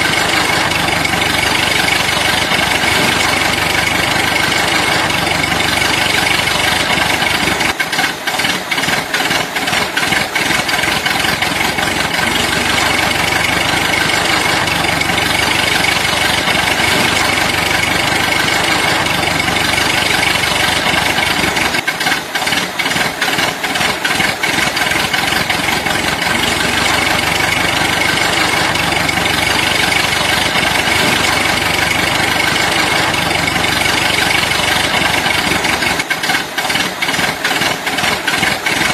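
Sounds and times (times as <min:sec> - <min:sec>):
small machine running with whine: 0:00.0 - 0:08.0, 0:23.2 - 0:36.0.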